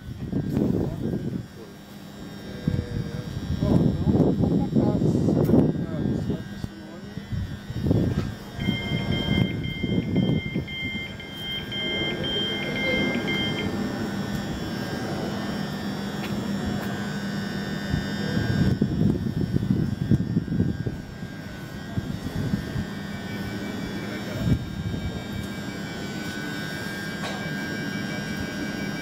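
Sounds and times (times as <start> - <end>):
wind on microphone: 0.0 - 1.6, 2.5 - 11.2, 17.8 - 23.0, 24.3 - 25.4
electric train traction hum: 0.0 - 29.0
repeating two-tone beep: 8.6 - 13.8.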